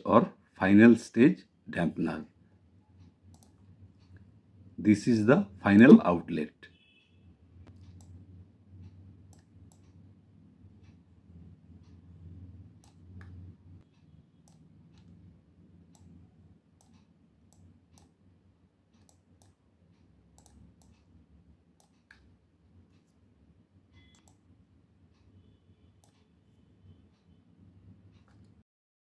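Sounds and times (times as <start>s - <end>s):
computer mouse clicking: 3.0s - 4.3s, 7.6s - 8.2s, 8.8s - 10.1s, 11.8s - 15.3s, 15.9s - 18.2s, 18.9s - 21.2s, 21.8s - 23.2s, 24.0s - 24.4s, 26.0s - 26.3s, 28.1s - 28.6s
low hum: 7.3s - 18.6s.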